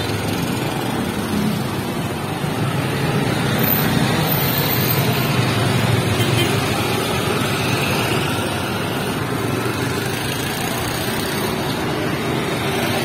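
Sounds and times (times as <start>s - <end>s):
auto-rickshaw engines passing: 0.0s - 13.0s
motorbikes running: 0.0s - 13.0s.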